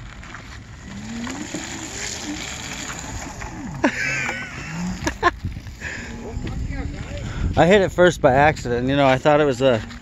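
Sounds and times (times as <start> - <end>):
electric bike motor whine: 0.6 - 3.9.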